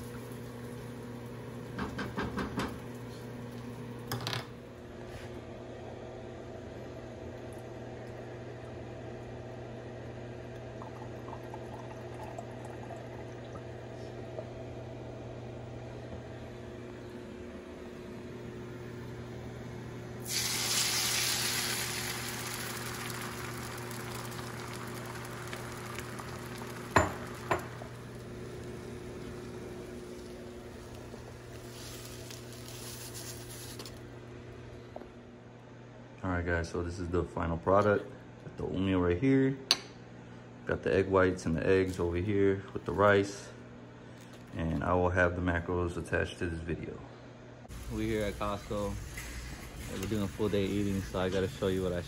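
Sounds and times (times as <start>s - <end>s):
egg whites sizzling in pan: 0.0s - 3.6s, 20.2s - 34.0s, 47.7s - 52.0s
steady low hum: 0.0s - 52.0s.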